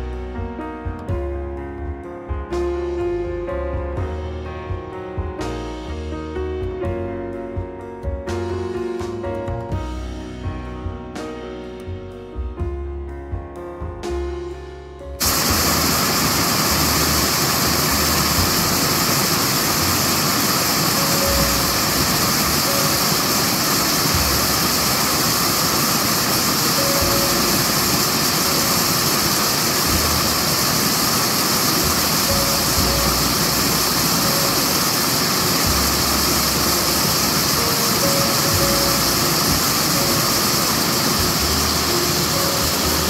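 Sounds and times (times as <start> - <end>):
waterfall rushing onto stones: 15.2 - 43.0.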